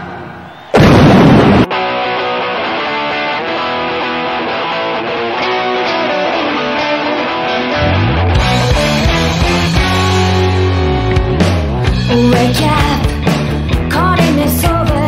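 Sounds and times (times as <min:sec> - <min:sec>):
loud burst of noise: 0:00.0 - 0:01.7
electric guitar riff: 0:00.8 - 0:15.0
low bass notes: 0:07.8 - 0:14.0.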